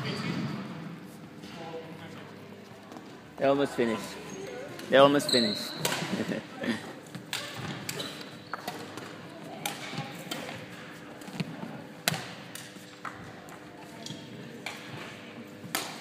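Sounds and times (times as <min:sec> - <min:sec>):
racket striking shuttlecock: 0:07.3 - 0:13.2, 0:15.6 - 0:16.0.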